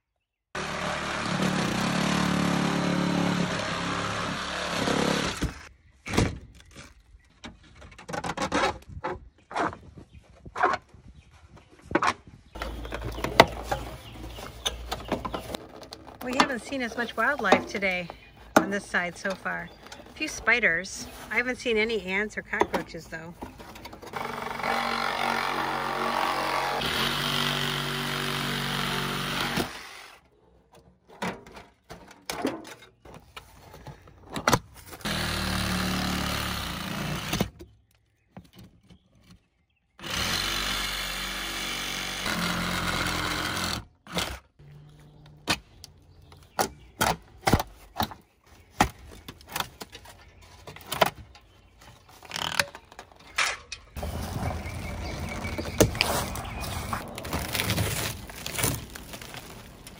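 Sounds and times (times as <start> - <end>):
power tool running: 0.6 - 5.7, 24.1 - 30.2, 35.0 - 37.5, 40.0 - 44.4
metal siding clicking and knocking: 4.8 - 9.7, 30.6 - 33.4.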